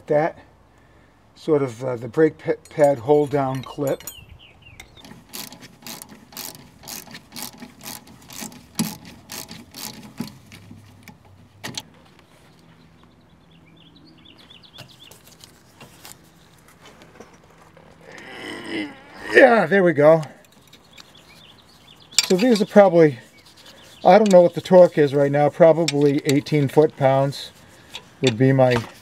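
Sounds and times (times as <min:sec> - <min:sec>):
ratchet wrench clicking: 0:04.8 - 0:10.4.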